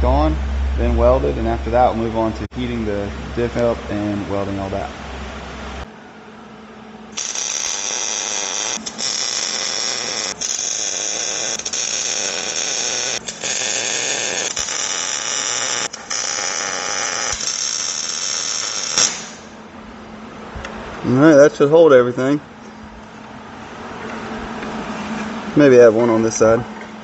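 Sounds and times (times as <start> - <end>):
welder arc crackling: 7.1 - 19.6.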